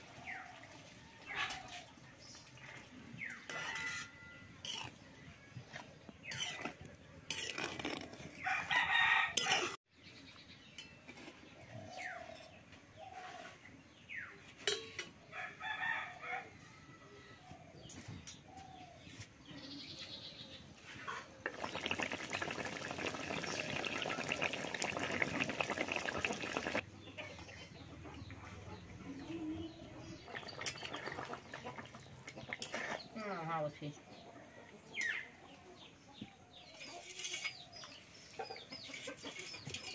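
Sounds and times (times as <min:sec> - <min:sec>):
chickens clucking: 0:20.9 - 0:33.1, 0:34.2 - 0:39.9.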